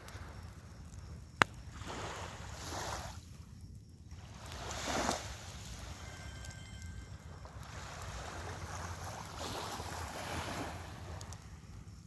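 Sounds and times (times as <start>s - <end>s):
waves washing onto shore: 4.2s - 6.8s, 7.4s - 11.3s.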